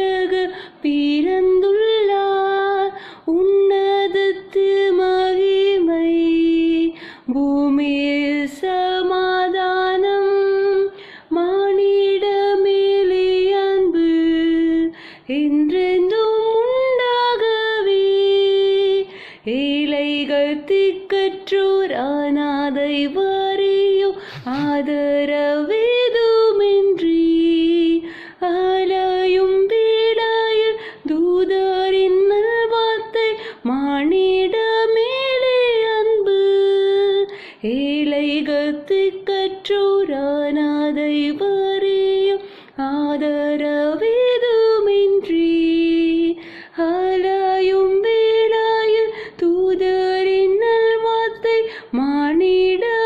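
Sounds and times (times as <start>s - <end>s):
woman singing unaccompanied: 0.0s - 53.0s
singer breathing: 0.5s - 0.8s, 3.0s - 3.3s, 7.0s - 7.3s, 10.9s - 11.3s, 14.9s - 15.3s, 19.1s - 19.5s, 24.2s - 24.7s, 28.0s - 28.4s, 33.4s - 33.6s, 37.3s - 37.6s, 42.4s - 42.8s, 46.4s - 46.8s, 49.1s - 49.4s, 51.7s - 52.0s.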